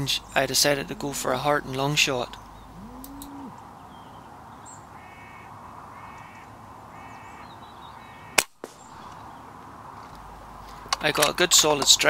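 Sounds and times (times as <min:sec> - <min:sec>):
crow harsh calls: 0:00.2 - 0:09.3
air rifle shot: 0:08.4 - 0:09.1.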